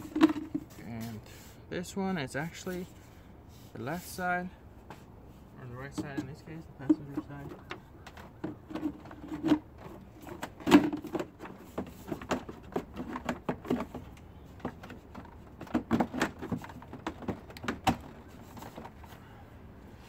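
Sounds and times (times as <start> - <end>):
plastic parts clicking and knocking: 0.0 - 0.8, 5.9 - 19.2.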